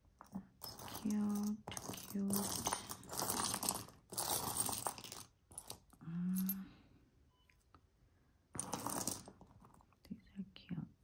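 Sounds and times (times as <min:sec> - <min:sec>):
jewelry clinking: 0:00.0 - 0:06.8, 0:08.5 - 0:10.0.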